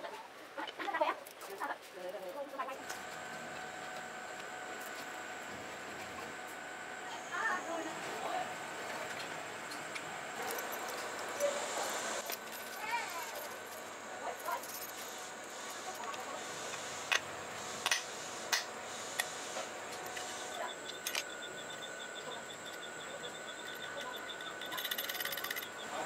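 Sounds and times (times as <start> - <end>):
small metal parts clicking: 12.2 - 17.2, 20.0 - 21.8, 22.5 - 25.8.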